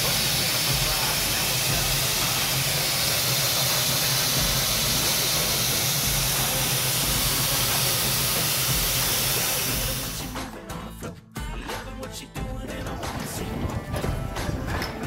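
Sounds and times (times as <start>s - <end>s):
steam locomotive venting steam: 0.0s - 10.4s.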